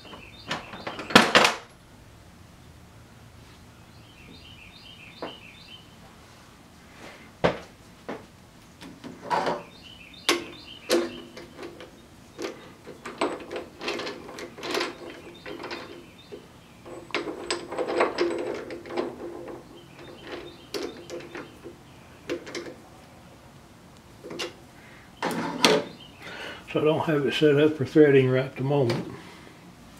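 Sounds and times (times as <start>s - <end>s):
metal clicks and knocks: 0.0s - 1.7s, 8.8s - 22.8s, 24.2s - 24.6s
chuck key ratcheting: 10.3s - 21.7s.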